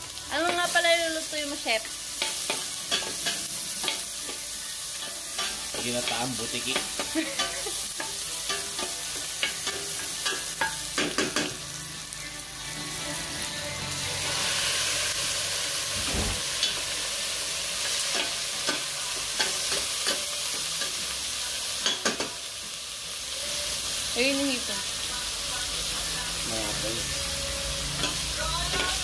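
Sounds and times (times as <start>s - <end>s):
food sizzling in oil: 0.0s - 29.0s
low thump: 16.0s - 16.5s.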